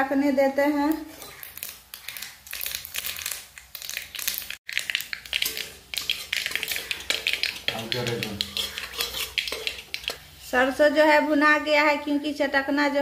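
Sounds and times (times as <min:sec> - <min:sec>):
mustard seeds popping in oil: 0:00.9 - 0:10.2
metal spatula scraping pan: 0:01.0 - 0:02.7, 0:05.3 - 0:10.6.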